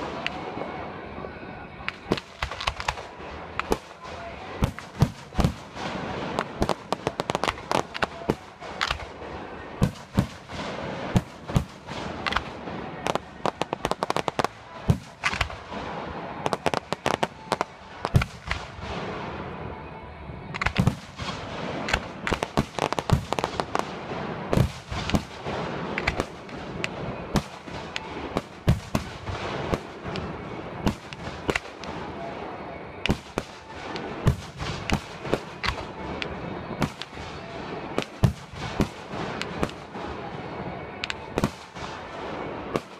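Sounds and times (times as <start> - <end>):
fireworks crackling: 0.0 - 0.9, 1.7 - 19.7, 20.5 - 42.9.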